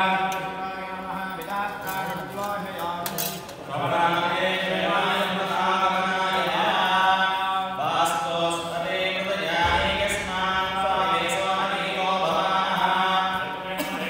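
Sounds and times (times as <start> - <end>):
priests chanting: 0.0 - 14.0.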